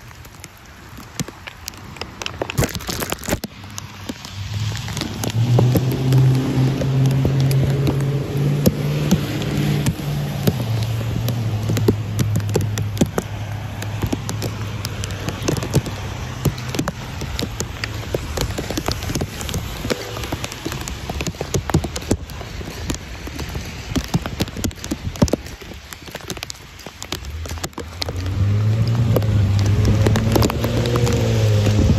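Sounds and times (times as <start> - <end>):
rain hiss: 0.0 - 31.9
raindrops ticking on plastic bag: 0.0 - 31.9
wet traffic: 0.0 - 31.9
vehicle engine hum: 1.5 - 31.9.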